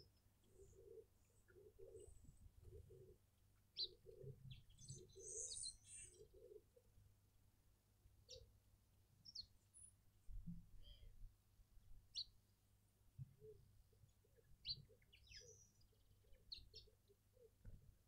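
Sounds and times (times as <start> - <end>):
small birds chirping: 0.0 - 6.8, 8.2 - 8.6, 9.2 - 11.2, 12.1 - 12.4, 13.4 - 17.7.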